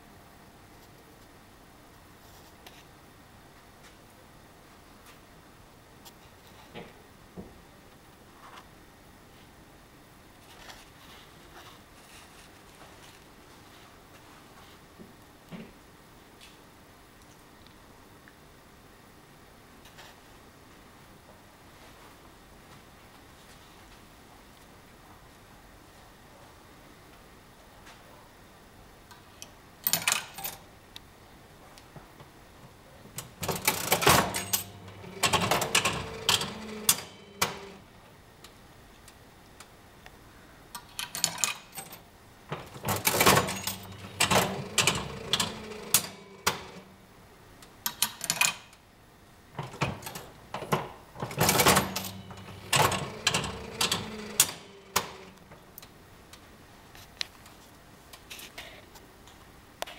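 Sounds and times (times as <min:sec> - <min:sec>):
fruit machine reels clunking: 0:33.2 - 0:37.8, 0:42.5 - 0:46.9, 0:49.6 - 0:55.6.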